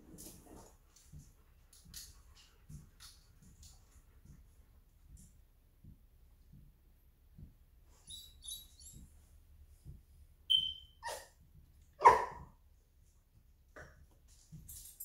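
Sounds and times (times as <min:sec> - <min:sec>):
smoke alarm chirp: 0:10.5 - 0:11.0
dog barking: 0:11.0 - 0:11.3, 0:12.0 - 0:12.5.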